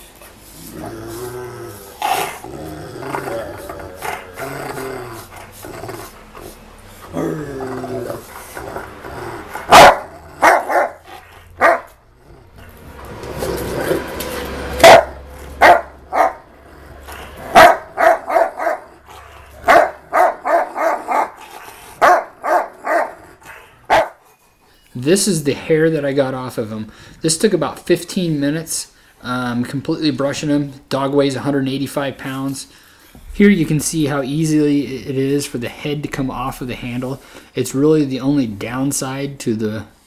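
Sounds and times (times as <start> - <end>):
dog growling: 0.4 - 24.1.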